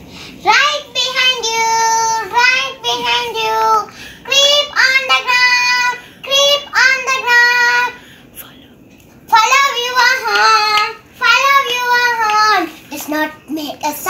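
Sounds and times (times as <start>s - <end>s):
girl singing: 0.4s - 8.0s, 9.2s - 14.0s.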